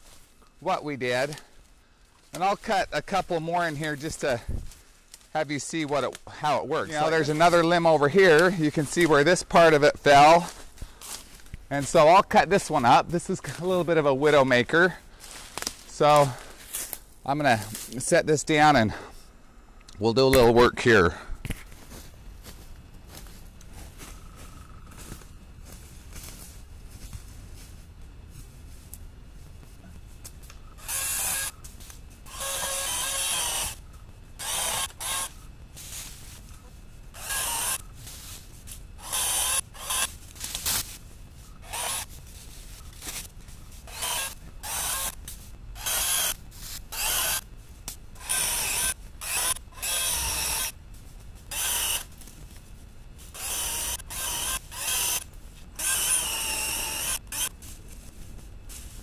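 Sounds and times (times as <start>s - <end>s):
footsteps through dry leaves: 6.8s - 18.0s, 21.6s - 30.3s, 35.3s - 38.9s, 39.8s - 44.3s.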